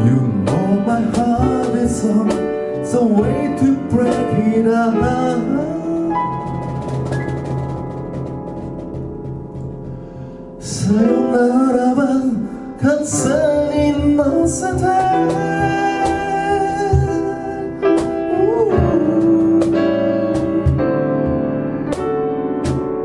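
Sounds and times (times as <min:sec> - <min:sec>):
man singing: 0:00.0 - 0:06.6, 0:10.6 - 0:21.1
grand piano chords: 0:00.0 - 0:23.0.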